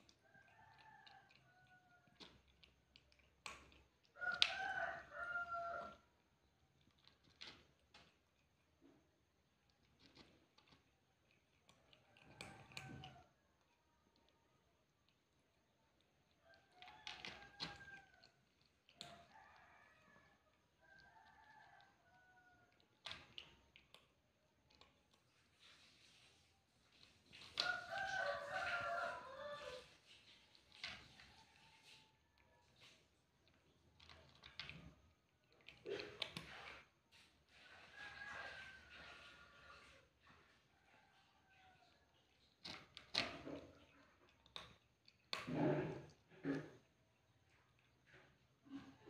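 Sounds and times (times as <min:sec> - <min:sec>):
cat chewing food: 0:00.0 - 0:49.0.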